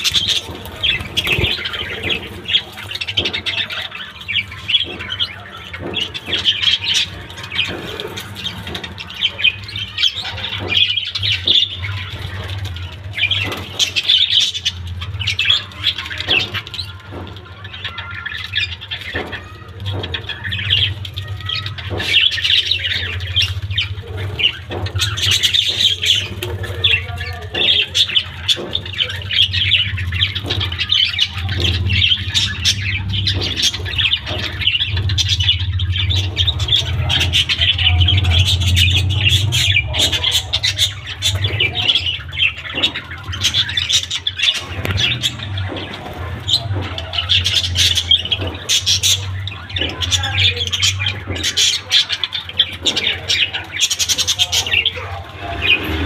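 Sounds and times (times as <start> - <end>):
budgerigars chattering: 0.0 - 56.0
steady low hum: 0.0 - 56.0.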